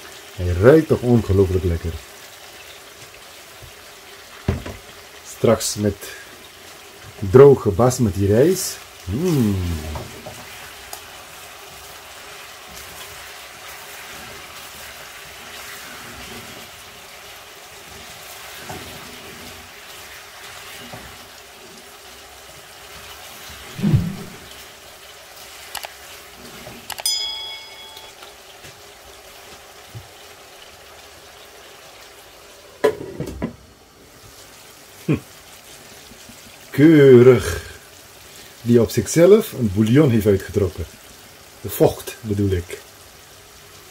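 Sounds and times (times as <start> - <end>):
chicken sizzling in oil: 0.0 - 43.9
spatula clinking against pan: 27.0 - 28.2.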